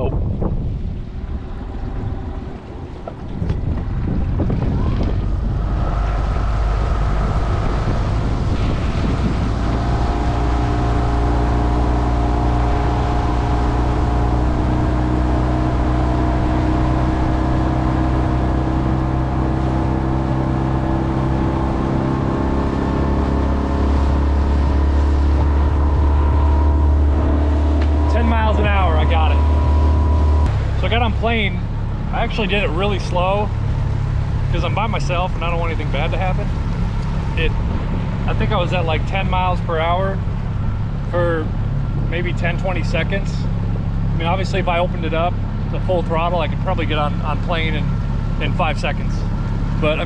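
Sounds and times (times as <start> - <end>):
wind on microphone: 0.0 - 44.7
outboard motor: 0.0 - 50.0.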